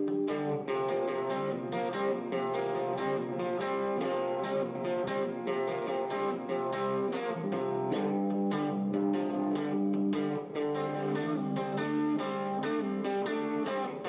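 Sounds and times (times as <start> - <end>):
guitar strumming: 0.0 - 14.0.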